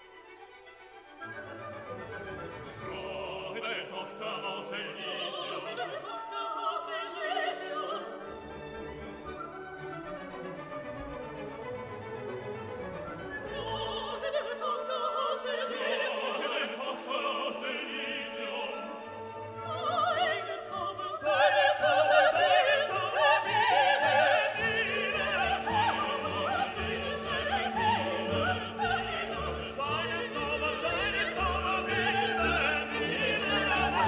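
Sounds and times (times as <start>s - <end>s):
orchestral accompaniment: 0.0s - 34.0s
opera singer with vibrato: 2.8s - 8.3s, 13.3s - 34.0s.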